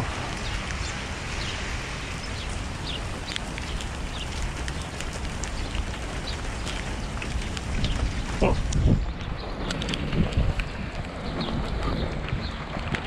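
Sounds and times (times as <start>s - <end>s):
heavy rain on pavement: 0.0s - 13.0s.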